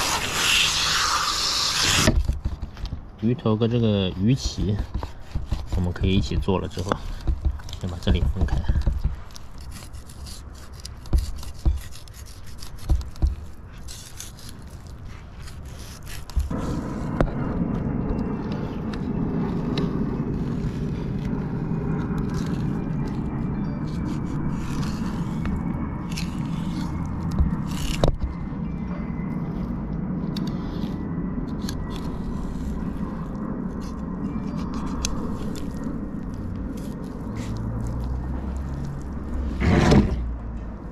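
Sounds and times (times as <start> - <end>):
knife scraping fish flesh: 0.0 - 2.6, 3.9 - 17.1, 18.8 - 28.2, 31.6 - 39.5
knife cutting through fish: 4.2 - 7.1, 8.8 - 17.0, 23.9 - 28.2
low rumble: 14.4 - 40.9.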